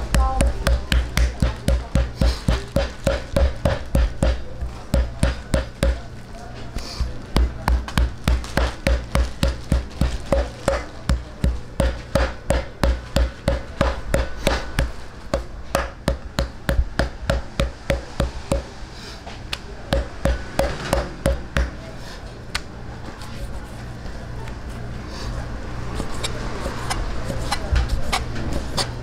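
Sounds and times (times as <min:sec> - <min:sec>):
knife chopping on cutting board: 0:00.0 - 0:06.0, 0:06.8 - 0:18.6.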